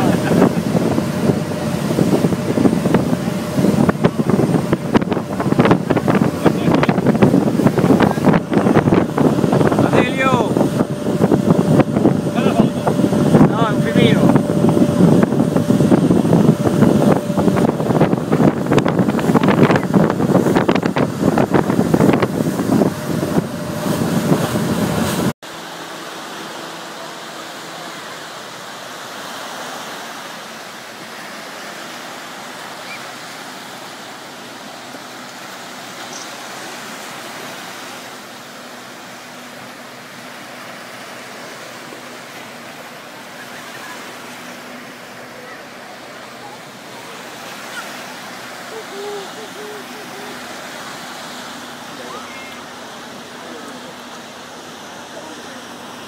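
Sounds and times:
wind buffeting microphone: 0:00.0 - 0:25.3
boat motor running: 0:00.0 - 0:56.0
small waves breaking on beach: 0:00.0 - 0:56.0.

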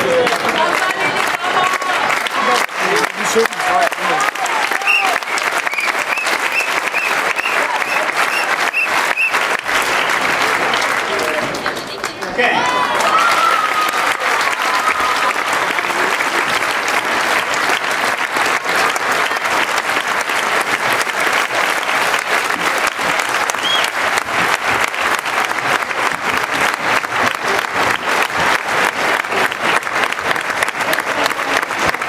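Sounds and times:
crowd applauding: 0:00.0 - 0:32.0
whistle from crowd: 0:04.8 - 0:09.4, 0:23.6 - 0:23.9.

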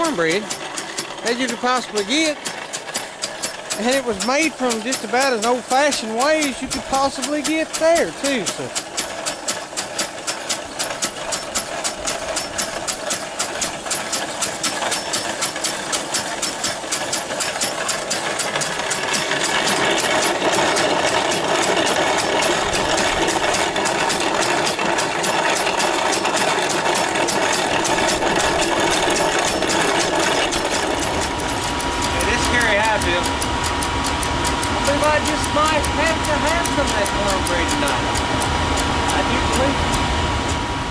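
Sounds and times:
grinder grinding corn: 0:00.0 - 0:40.9
steam engine beating: 0:00.0 - 0:40.9.

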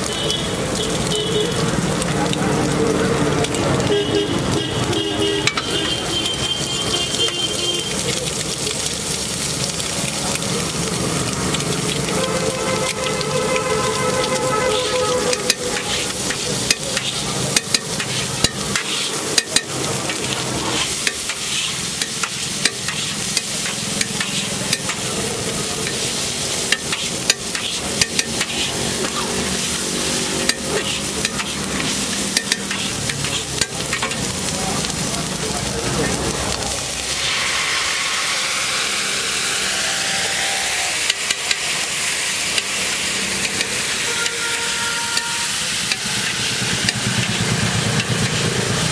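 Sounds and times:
food sizzling on griddle: 0:00.0 - 0:48.9
loud hissing sizzle: 0:00.0 - 0:48.9
metal spatula clacking on iron: 0:05.4 - 0:05.7, 0:15.3 - 0:20.2, 0:21.0 - 0:25.1, 0:26.7 - 0:28.7, 0:30.4 - 0:31.6, 0:32.2 - 0:34.3.

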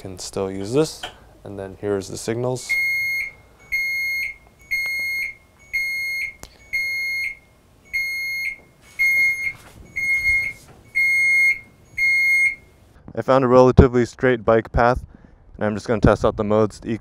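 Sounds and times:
high electronic beeps: 0:02.7 - 0:12.7.

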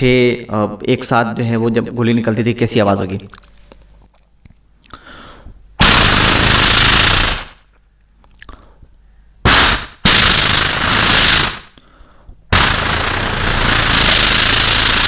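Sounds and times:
short breaths: 0:04.9 - 0:05.6, 0:11.7 - 0:12.4
man imitating gunfire by mouth: 0:05.8 - 0:07.6, 0:09.5 - 0:11.8, 0:12.5 - 0:15.0.

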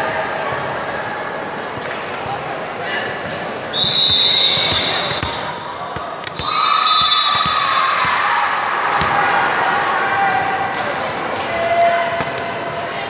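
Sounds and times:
referee whistle: 0:03.7 - 0:07.8.

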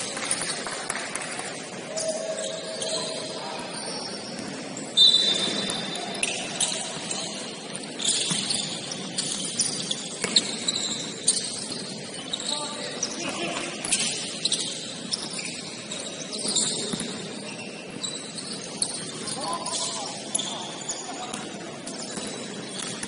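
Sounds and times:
sneakers squeaking on hardwood: 0:02.4 - 0:23.0
basketball bouncing: 0:10.1 - 0:10.8.

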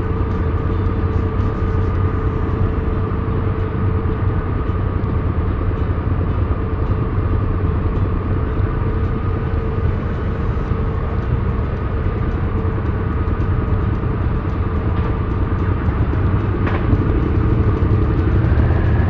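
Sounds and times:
road and wind noise: 0:00.0 - 0:19.0
motorcycle engine cruising: 0:08.8 - 0:19.0.

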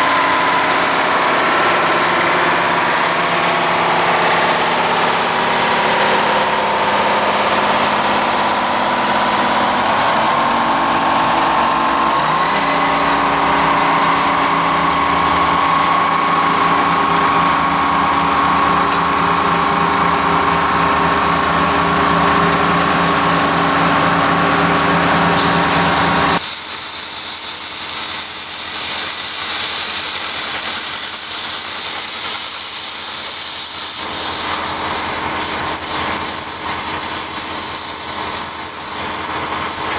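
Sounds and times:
diesel locomotive engine running: 0:00.0 - 0:39.9
cutting torch hissing: 0:25.3 - 0:39.9.

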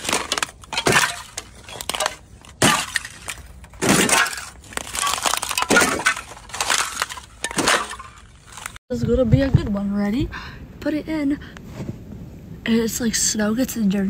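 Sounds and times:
ice cracking under footsteps: 0:00.0 - 0:08.8.

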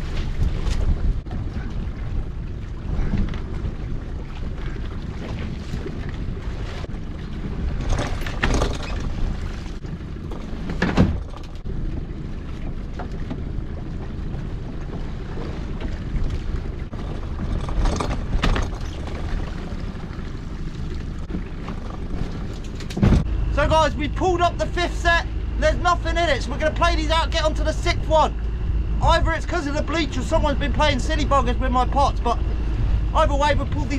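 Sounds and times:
low rumble of wind and boat: 0:00.0 - 0:33.9
water splashes: 0:00.0 - 0:33.9.

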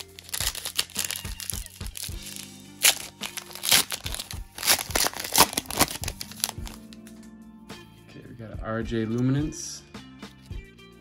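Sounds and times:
foil wrapper crinkling and tearing: 0:00.0 - 0:07.0
background music: 0:00.0 - 0:11.0.

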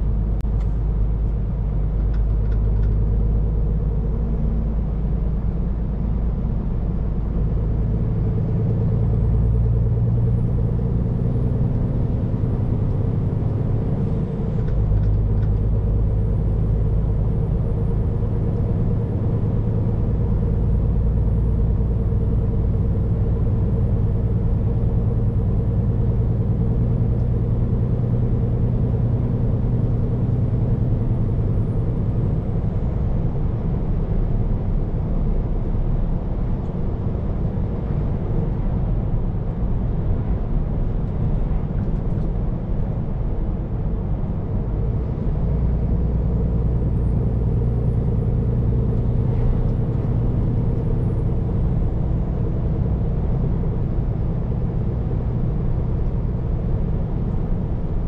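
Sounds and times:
truck diesel engine in cab: 0:00.0 - 0:58.0.

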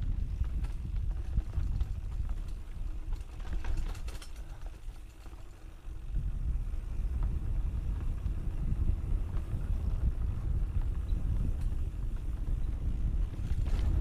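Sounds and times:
bike rattling and clicking: 0:00.0 - 0:14.0
wind buffeting microphone: 0:00.0 - 0:14.0.

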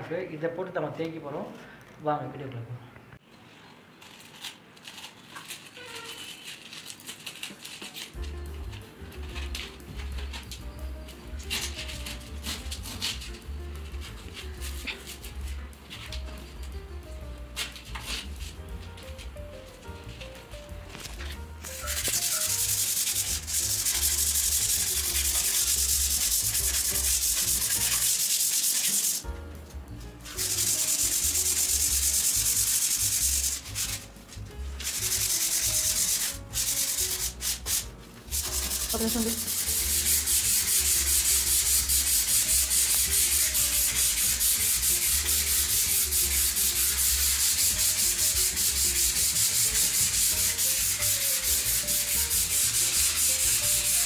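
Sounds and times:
hand sanding scratchy strokes: 0:21.7 - 0:29.3, 0:30.3 - 0:34.0, 0:34.8 - 0:54.0.

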